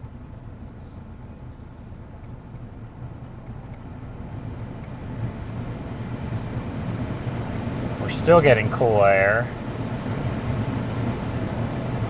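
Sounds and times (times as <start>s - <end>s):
blower fan rushing air: 2.8s - 12.0s.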